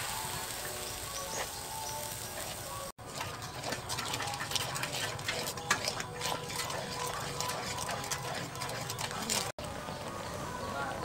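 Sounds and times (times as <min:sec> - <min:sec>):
sauce bubbling and sizzling: 0:00.0 - 0:09.6
metal ladle scraping in a wok: 0:00.4 - 0:09.6.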